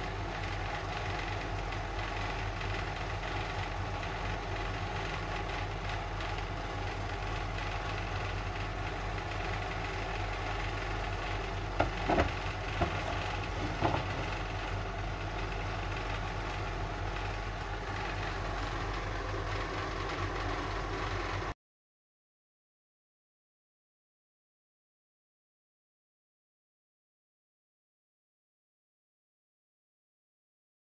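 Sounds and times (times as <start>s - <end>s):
low mechanical hum: 0.0s - 21.6s
ashtray knocking on wooden table: 11.8s - 14.2s.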